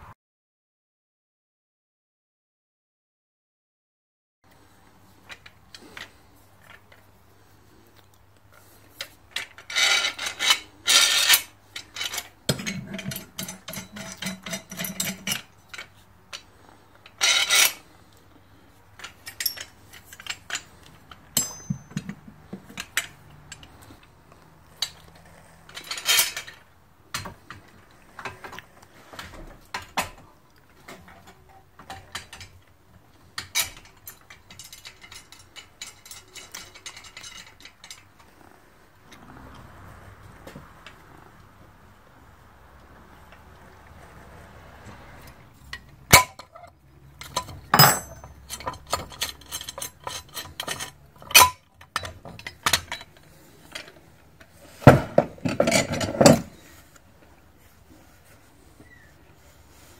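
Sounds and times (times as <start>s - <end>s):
metal clanks and scrapes: 9.0s - 17.9s, 19.0s - 24.0s, 24.8s - 30.2s, 33.3s - 38.6s, 45.2s - 57.0s.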